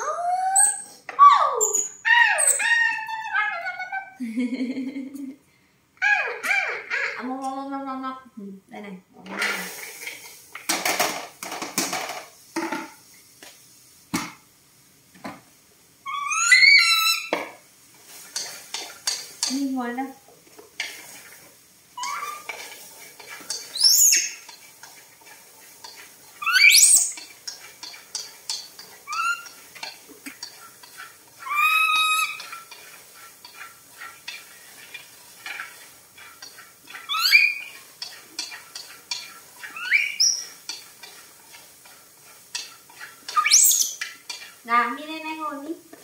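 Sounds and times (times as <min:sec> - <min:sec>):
baby monkeys squealing: 0:00.0 - 0:04.2, 0:06.0 - 0:07.3, 0:16.1 - 0:17.3, 0:22.0 - 0:22.6, 0:23.6 - 0:24.5, 0:26.4 - 0:27.3, 0:29.0 - 0:29.6, 0:31.4 - 0:32.7, 0:37.0 - 0:37.8, 0:39.6 - 0:40.6, 0:43.3 - 0:44.0
utensil scraping a metal wok: 0:09.2 - 0:13.0, 0:16.1 - 0:46.0.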